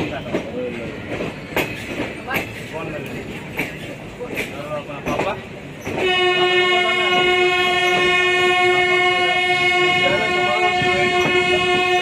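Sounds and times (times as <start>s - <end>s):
train rattling clicks: 0.0s - 12.0s
locomotive horn: 5.9s - 12.0s.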